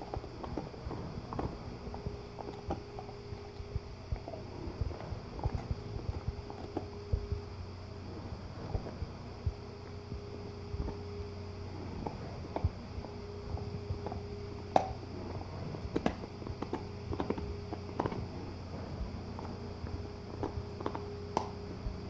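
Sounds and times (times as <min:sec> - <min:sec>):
dog gnawing on antler: 0:00.0 - 0:22.0.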